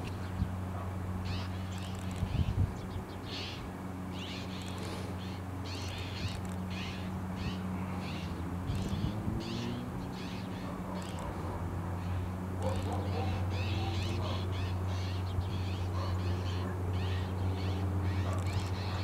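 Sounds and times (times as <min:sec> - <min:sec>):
small birds calling: 0:00.0 - 0:19.0.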